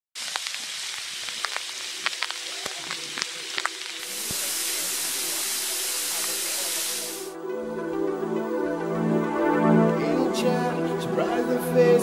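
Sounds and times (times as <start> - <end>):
small waterfall splashing onto rock: 0.2 - 7.3
water drips and splashes: 0.2 - 7.3.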